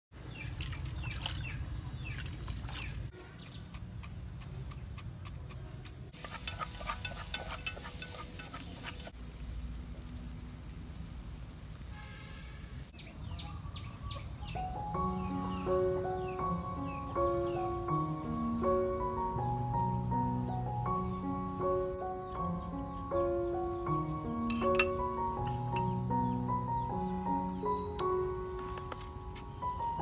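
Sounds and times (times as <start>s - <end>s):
birds chirping: 0.2s - 9.2s, 12.9s - 30.0s
pot sizzling and crackling: 5.8s - 13.0s.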